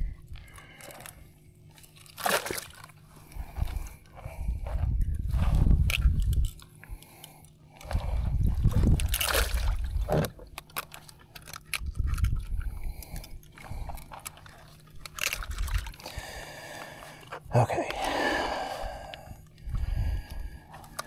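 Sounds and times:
water sloshing and dripping: 1.7s - 3.0s, 7.9s - 11.5s.

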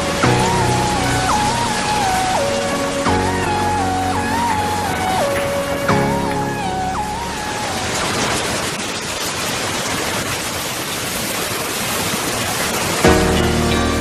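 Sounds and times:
held musical note: 0.0s - 8.4s
heavy rain: 0.0s - 14.0s.

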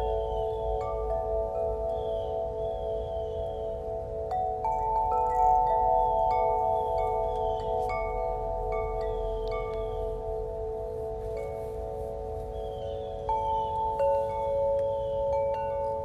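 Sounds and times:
bell-like chimes ringing: 0.0s - 16.0s
faint high gliding chirps: 6.1s - 15.8s.

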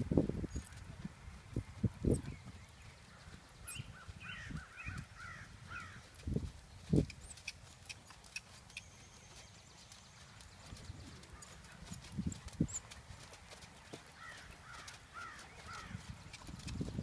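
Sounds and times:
horse hoofbeats on sand: 5.2s - 17.0s.

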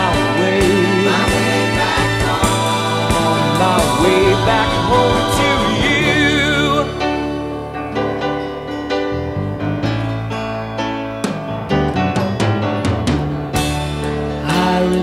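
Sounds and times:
drum hits: 0.0s - 6.3s
steady bass: 0.0s - 15.0s
sustained keyboard chords: 0.0s - 15.0s.

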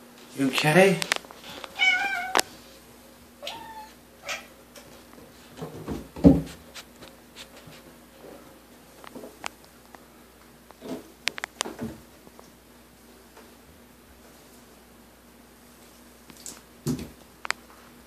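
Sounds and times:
kitten meowing: 1.8s - 2.5s, 3.4s - 4.5s.

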